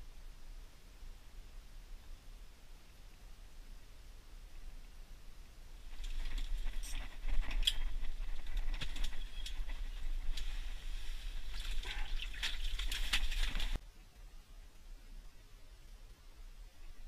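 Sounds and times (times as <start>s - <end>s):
steady low hum: 0.0s - 17.0s
clothing rustling: 5.8s - 13.8s
fishing line hauled by hand: 5.9s - 13.8s.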